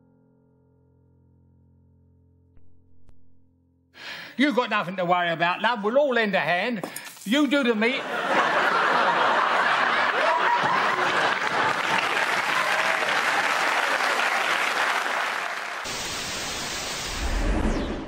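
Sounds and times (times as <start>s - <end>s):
audience applause: 8.0s - 15.9s
television static hiss: 13.9s - 17.4s.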